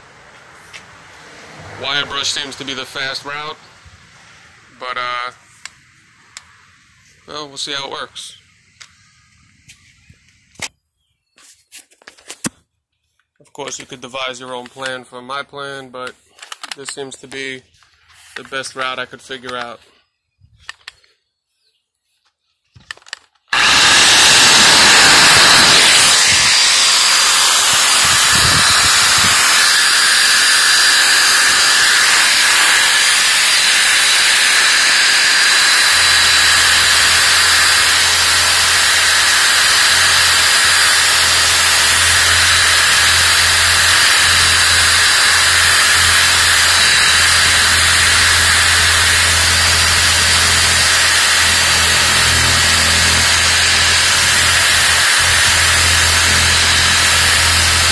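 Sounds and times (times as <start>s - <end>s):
reciprocating saw running: 23.5s - 57.9s
wire brush shredding styrofoam: 23.5s - 57.9s.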